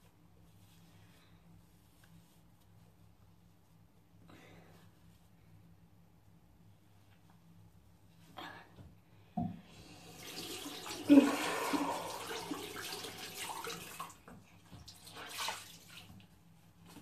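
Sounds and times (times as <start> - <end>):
tap water running into sink: 9.4 - 16.2
water splashing: 14.8 - 16.2.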